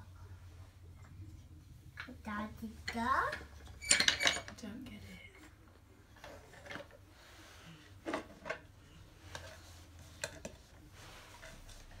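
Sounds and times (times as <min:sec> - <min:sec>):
wooden pieces clicking and knocking: 0:03.2 - 0:04.6.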